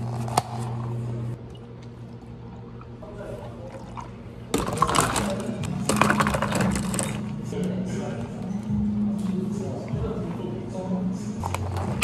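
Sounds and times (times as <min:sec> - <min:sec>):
ice cubes clattering: 0:04.5 - 0:07.2.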